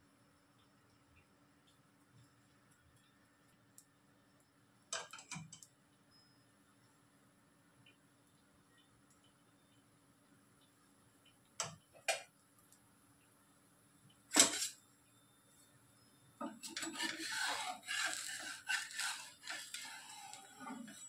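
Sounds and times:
spatula scraping griddle: 0:14.3 - 0:14.8, 0:16.4 - 0:21.0.

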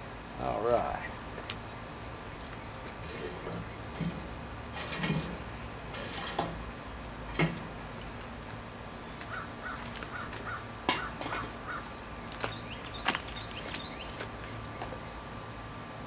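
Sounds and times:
charcoal briquettes clattering: 0:02.4 - 0:08.6, 0:09.2 - 0:14.9
crow cawing: 0:09.3 - 0:11.9.

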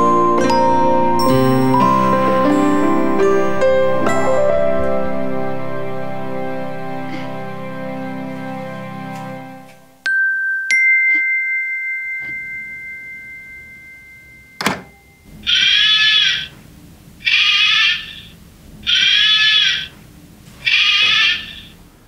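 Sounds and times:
two-note electronic chime: 0:00.0 - 0:15.3
alarm clock calls: 0:15.5 - 0:16.5, 0:17.3 - 0:18.2, 0:18.9 - 0:19.9, 0:20.7 - 0:21.7.

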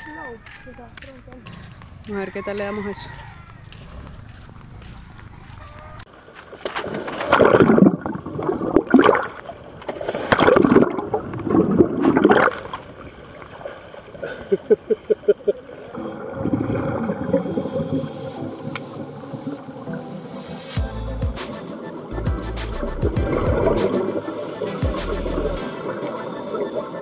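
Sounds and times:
gurgling underwater bubbles: 0:06.9 - 0:19.9.

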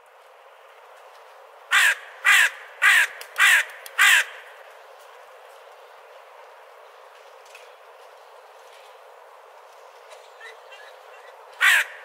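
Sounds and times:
crow cawing: 0:01.7 - 0:04.5, 0:11.6 - 0:12.0.

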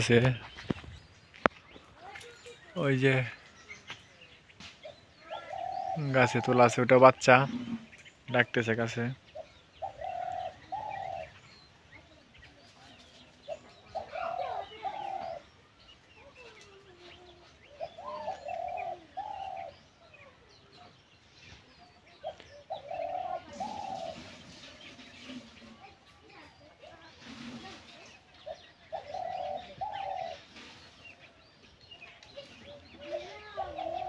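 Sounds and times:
dove cooing: 0:04.9 - 0:06.8, 0:09.2 - 0:15.5, 0:16.2 - 0:20.8, 0:22.1 - 0:25.8, 0:26.9 - 0:31.0, 0:32.4 - 0:34.0.

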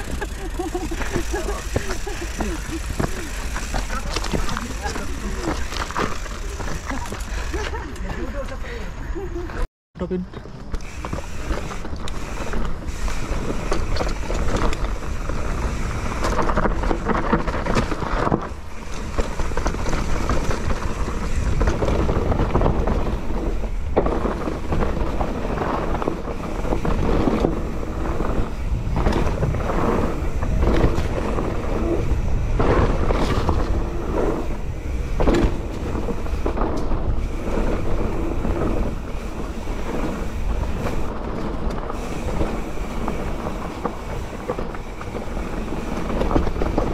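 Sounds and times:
bike rattling and knocking: 0:00.0 - 0:08.4, 0:10.3 - 0:46.9
tyres running on dirt: 0:00.0 - 0:46.9
wind rushing over microphone: 0:10.9 - 0:46.9.

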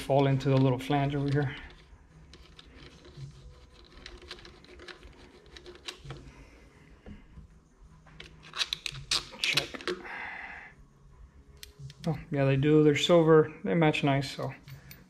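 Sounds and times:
metal parts clicking: 0:00.0 - 0:06.3, 0:08.2 - 0:10.0
screwdriver clicking and scraping: 0:00.2 - 0:06.3, 0:08.2 - 0:10.0.

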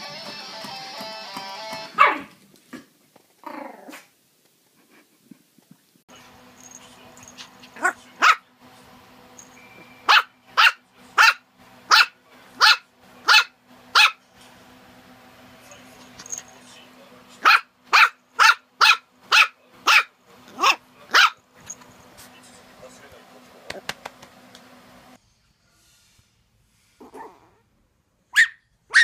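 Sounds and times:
puppy barking: 0:01.9 - 0:02.4, 0:07.4 - 0:08.5, 0:10.0 - 0:14.2, 0:17.4 - 0:21.4, 0:28.3 - 0:29.0.

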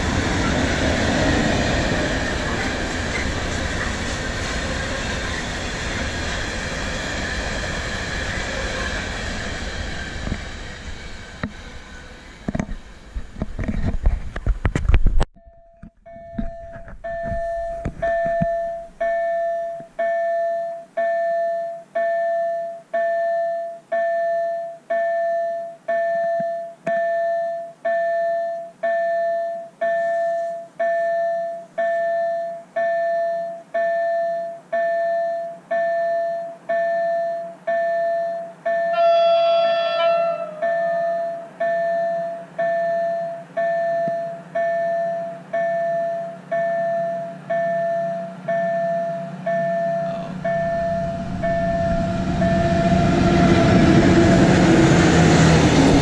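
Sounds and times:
freight train wheels clattering: 0:00.0 - 0:14.6
level crossing bell dinging: 0:15.4 - 0:52.8.

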